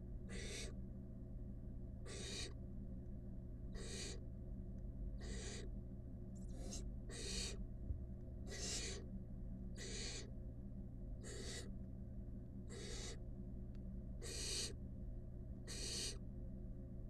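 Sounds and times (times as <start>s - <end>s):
steady low hum: 0.0s - 17.0s
owl chicks hissing: 0.3s - 0.8s, 2.0s - 2.6s, 3.7s - 4.2s, 5.2s - 5.7s, 6.4s - 7.6s, 8.4s - 9.1s, 9.8s - 10.3s, 11.2s - 11.7s, 12.7s - 13.2s, 14.2s - 14.8s, 15.7s - 16.2s.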